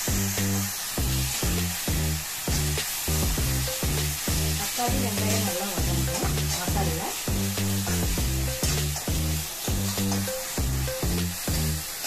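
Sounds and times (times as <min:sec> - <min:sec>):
music with bass beat: 0:00.0 - 0:11.9
food sizzling in a pan: 0:00.0 - 0:12.0.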